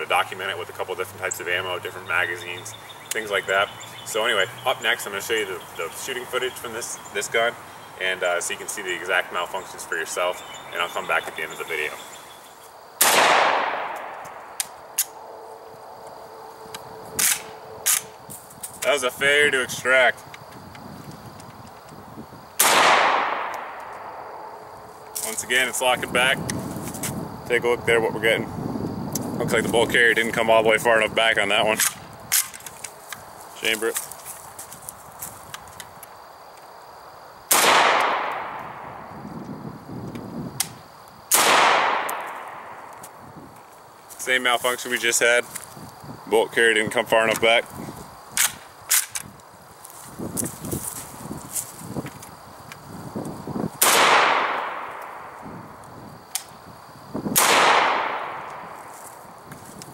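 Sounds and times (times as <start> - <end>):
gunshot echo: 13.0 - 14.4, 22.6 - 23.9, 37.5 - 38.8, 41.3 - 42.8, 53.8 - 55.3, 57.4 - 58.7.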